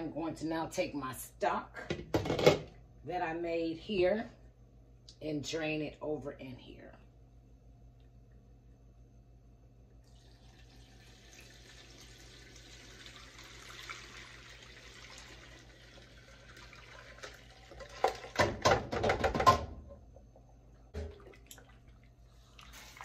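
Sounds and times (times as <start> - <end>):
liquid trickling: 10.0 - 18.4, 21.0 - 23.0.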